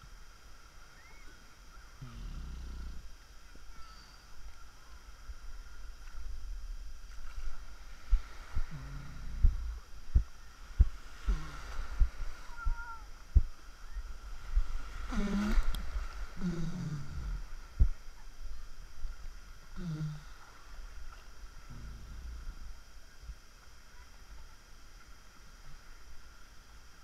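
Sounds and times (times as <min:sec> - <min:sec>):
sea waves sloshing: 0:05.5 - 0:21.7.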